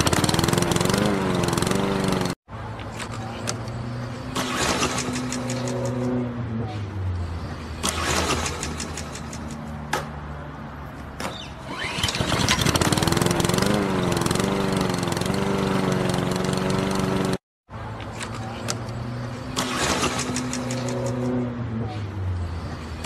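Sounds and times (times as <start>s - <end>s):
lawn mower engine starting: 0.0s - 2.4s, 4.4s - 6.0s, 7.8s - 9.2s, 11.6s - 17.4s, 19.5s - 21.3s.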